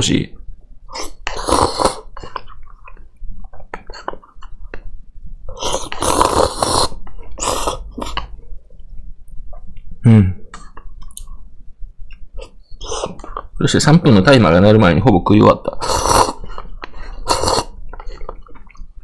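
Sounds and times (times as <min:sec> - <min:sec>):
man slurping noodles: 0:00.9 - 0:02.1, 0:05.5 - 0:08.3, 0:15.7 - 0:18.3.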